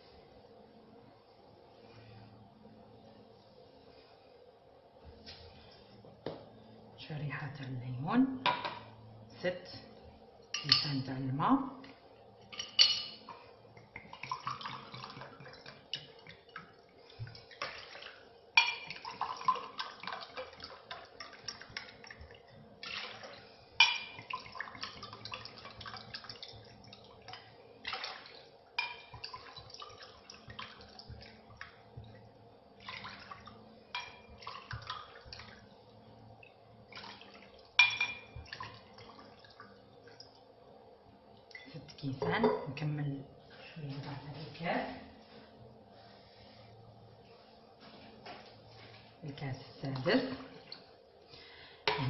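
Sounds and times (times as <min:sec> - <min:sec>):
water pouring into a pot: 0:12.4 - 0:40.6.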